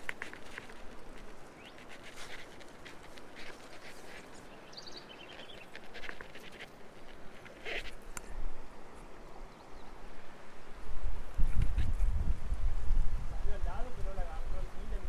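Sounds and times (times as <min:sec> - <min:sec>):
birds chirping: 0:00.0 - 0:10.2
background hiss: 0:00.0 - 0:15.0.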